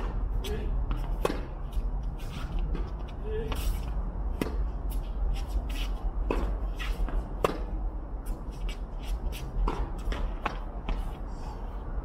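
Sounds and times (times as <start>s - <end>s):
steady low rumble: 0.0s - 12.0s
ball bouncing: 6.2s - 7.8s.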